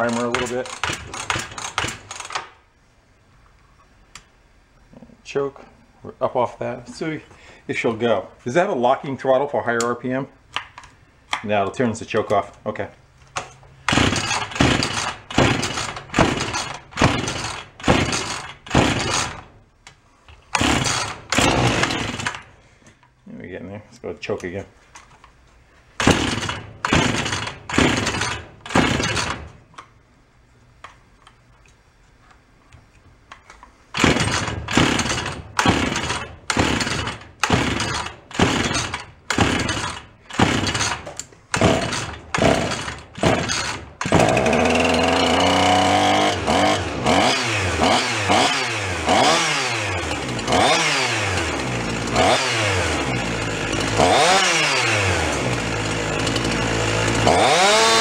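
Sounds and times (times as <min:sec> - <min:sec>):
chainsaw starter cord pulls: 0:00.0 - 0:02.6, 0:13.9 - 0:19.5, 0:20.5 - 0:22.5, 0:26.0 - 0:29.9, 0:34.0 - 0:58.0
chainsaw engine revving: 0:13.9 - 0:19.5, 0:20.5 - 0:22.6, 0:26.0 - 0:29.5, 0:34.0 - 0:58.0.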